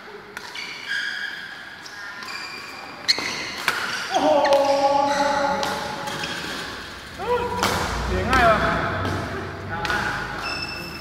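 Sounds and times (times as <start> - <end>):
shoes squeaking on court: 0.4 - 7.0, 10.2 - 11.0.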